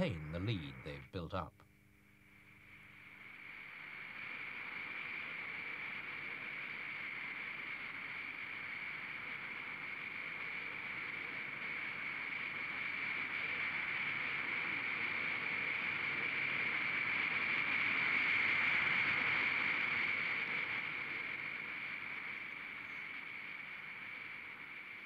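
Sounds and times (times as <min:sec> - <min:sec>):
turbine whine: 0:00.0 - 0:13.9.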